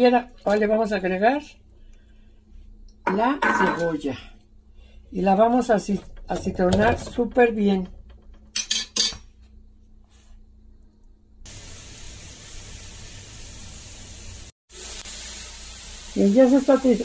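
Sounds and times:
onion sizzling in oil: 0:11.4 - 0:17.0.

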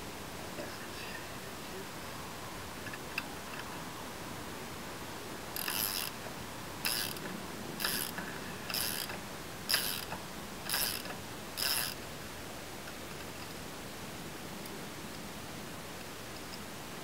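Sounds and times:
socket ratchet clicking: 0:05.6 - 0:06.1, 0:06.8 - 0:07.2, 0:07.8 - 0:12.0.

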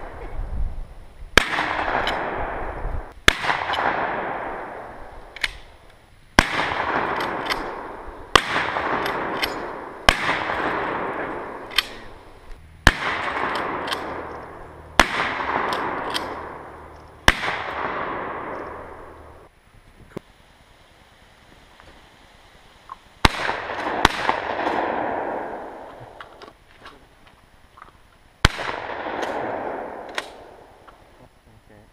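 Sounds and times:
gunshots with echo: 0:01.4 - 0:04.9, 0:06.4 - 0:12.2, 0:12.8 - 0:19.3, 0:23.2 - 0:25.8.

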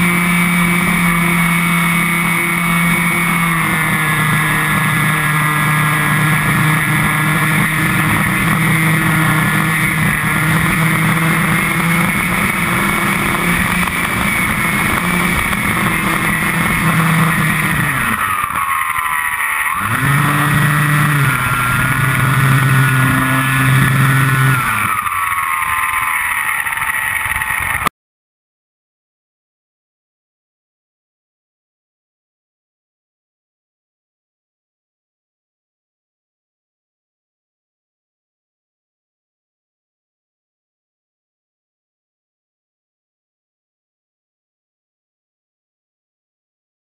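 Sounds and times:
model glider motor whine: 0:00.0 - 0:27.9
rushing wind: 0:00.0 - 0:27.9.

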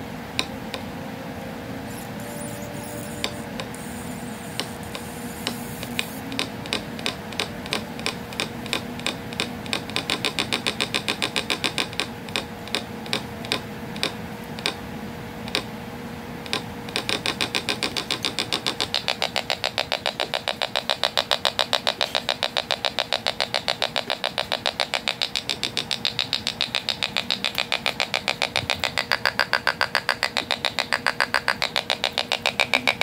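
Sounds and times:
electronic bird whistle chirping: 0:01.9 - 0:06.2.

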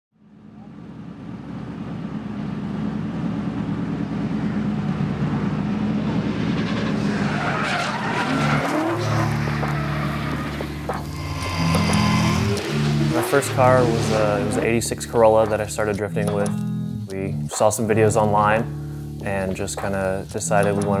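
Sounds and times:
car engine running: 0:00.2 - 0:15.9
tyres squealing: 0:06.9 - 0:15.7.

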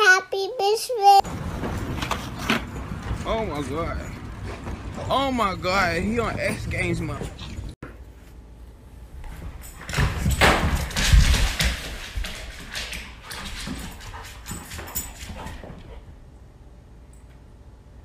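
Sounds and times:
dog paws on hardwood floor: 0:01.3 - 0:08.3, 0:09.2 - 0:16.0.

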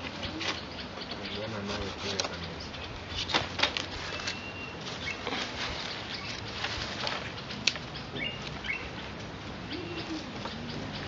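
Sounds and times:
bamboo strips rustling and clicking: 0:01.9 - 0:02.5, 0:03.2 - 0:09.4.

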